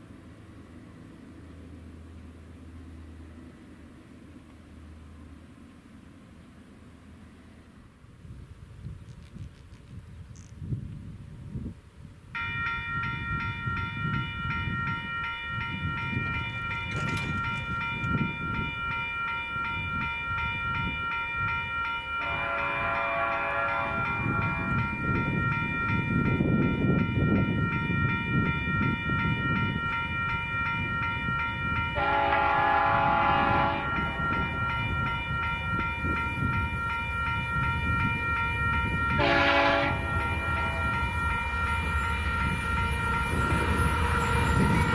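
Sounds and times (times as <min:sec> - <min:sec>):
train rumble: 0:00.0 - 0:44.9
high ringing tone: 0:12.4 - 0:44.9
train air horn blasts: 0:22.1 - 0:25.8, 0:28.7 - 0:44.9.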